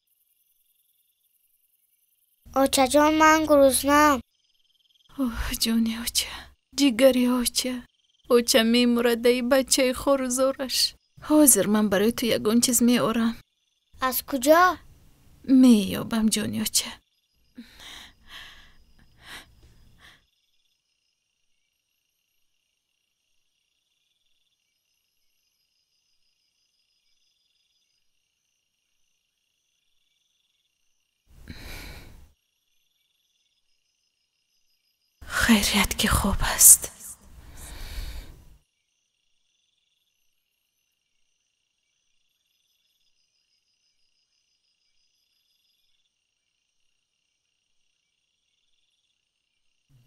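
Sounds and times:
crickets chirring: 0.0s - 49.9s
soft sighing breaths: 17.6s - 20.2s, 31.4s - 32.3s, 36.9s - 38.6s.

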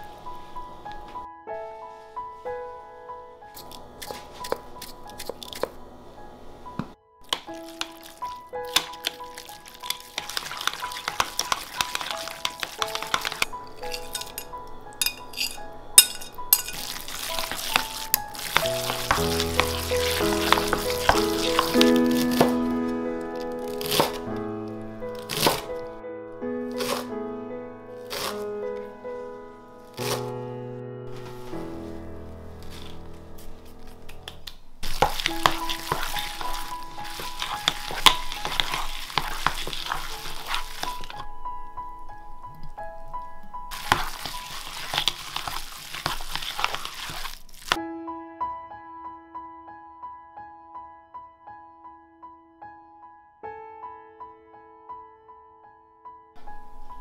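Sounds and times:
background music with held notes: 6.1s - 34.0s
wet sticky mixing: 7.2s - 25.9s, 26.7s - 27.1s, 28.0s - 28.9s, 31.1s - 41.3s, 42.4s - 47.8s.

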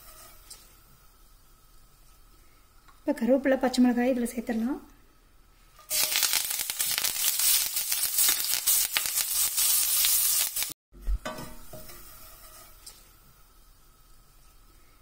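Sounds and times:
oil sizzling and crackling: 5.6s - 10.8s.

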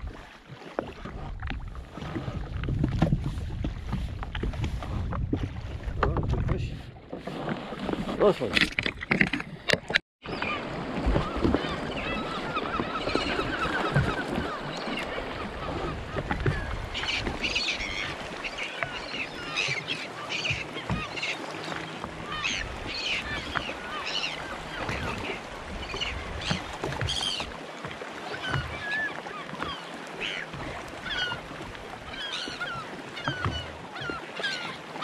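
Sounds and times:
seabirds squawking: 10.3s - 35.0s.

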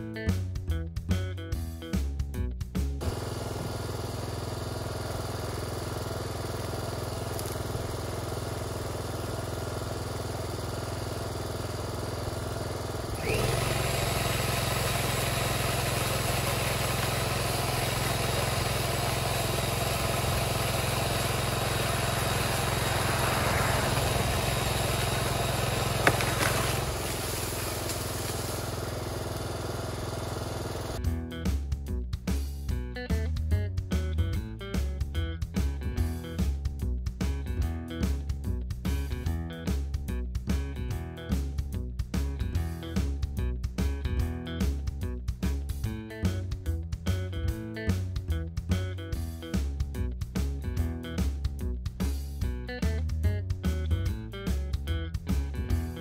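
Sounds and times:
electric pole saw cutting: 3.0s - 31.0s
generator running: 3.0s - 31.1s
sharp crack of tree limb: 23.1s - 28.7s.

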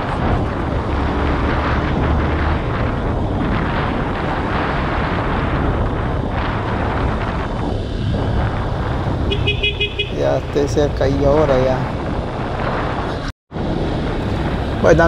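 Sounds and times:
wind rush on microphone: 0.0s - 15.0s
motorcycle engine running: 2.0s - 10.2s.

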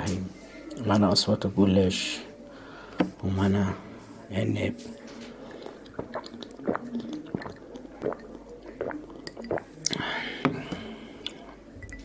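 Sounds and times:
breathy sound: 2.4s - 3.2s, 9.8s - 11.6s
sipping and gulping a drink: 5.4s - 11.6s.

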